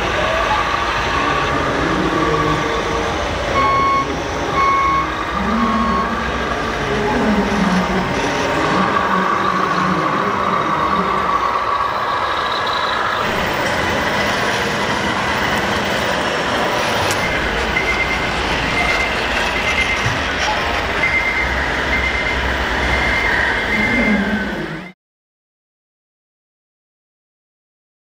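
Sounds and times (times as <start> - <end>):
exhibition hall hubbub: 0.0 - 24.9
toy truck engine sounds: 0.0 - 25.0
high electronic beeps: 3.5 - 6.8, 15.8 - 24.9.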